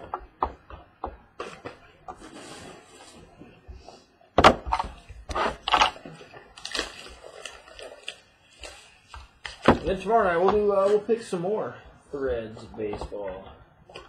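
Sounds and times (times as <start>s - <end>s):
plastic wrapping rustling: 4.9s - 13.3s.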